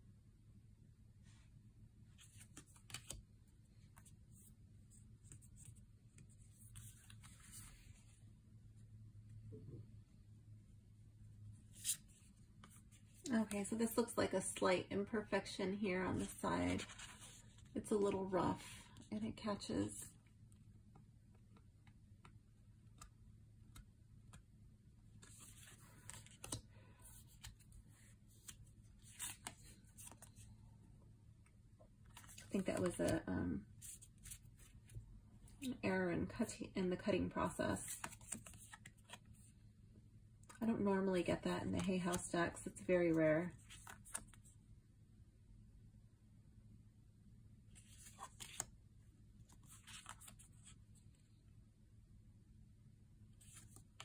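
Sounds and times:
low steady hum: 0:00.0 - 0:54.0
cards sliding rustle: 0:02.2 - 0:03.2, 0:25.2 - 0:30.5, 0:37.9 - 0:39.5, 0:43.6 - 0:44.4, 0:47.8 - 0:48.7, 0:49.5 - 0:50.8.

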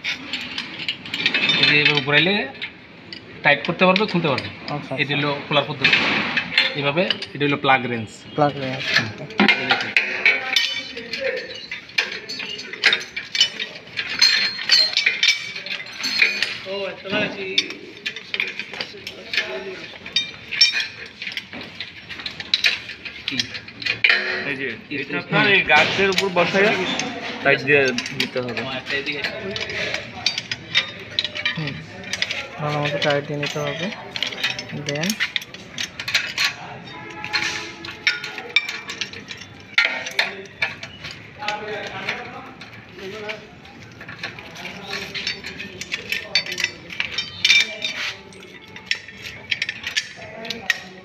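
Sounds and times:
man speaking: 0:06.8 - 0:11.5, 0:24.4 - 0:30.4
metal clinks of wrench: 0:08.5 - 0:51.0.

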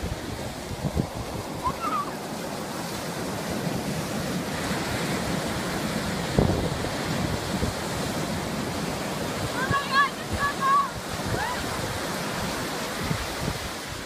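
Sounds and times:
ocean surf breaking: 0:00.0 - 0:14.0
wind buffeting microphone: 0:00.0 - 0:14.0.

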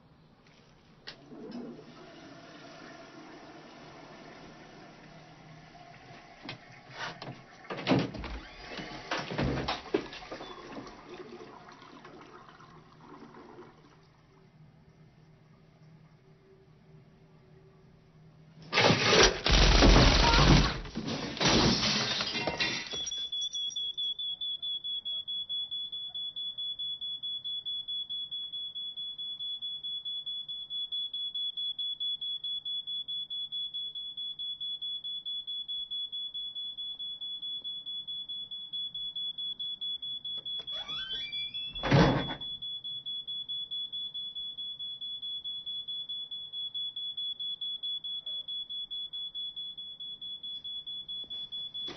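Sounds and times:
smoke alarm beeping: 0:22.6 - 0:51.9.

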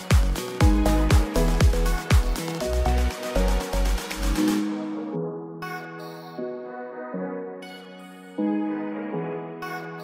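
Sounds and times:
electronic drum beat and bass: 0:00.0 - 0:04.6.

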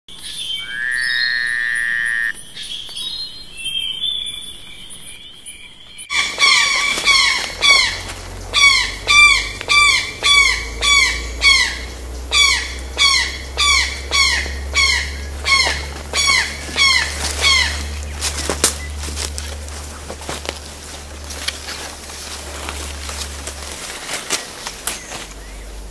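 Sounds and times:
squeaky animal calls: 0:00.6 - 0:02.4, 0:06.1 - 0:19.4.

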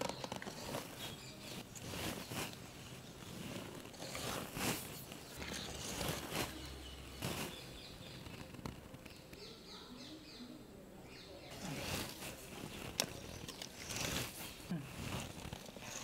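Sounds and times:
faint bird chirps: 0:00.0 - 0:14.9.

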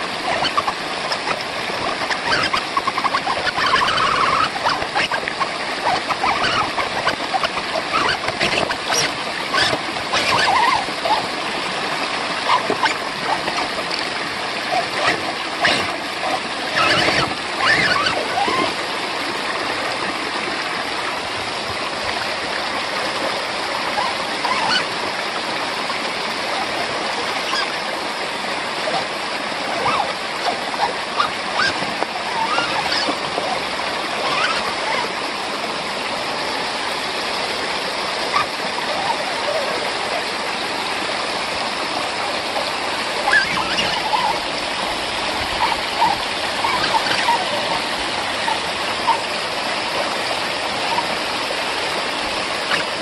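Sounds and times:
toy car tyres splashing: 0:00.0 - 0:11.3, 0:12.4 - 0:18.7
water rushing down a waterfall: 0:00.0 - 0:53.0.

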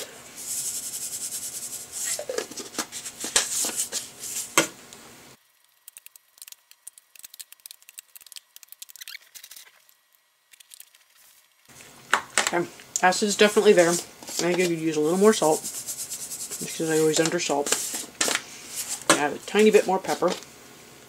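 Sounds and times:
salt shaken from a shaker: 0:00.4 - 0:04.6, 0:13.8 - 0:18.1.

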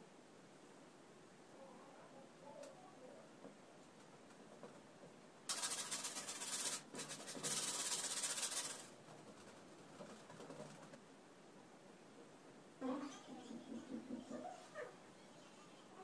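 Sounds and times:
paint brush scrubbing on canvas: 0:05.5 - 0:08.9.

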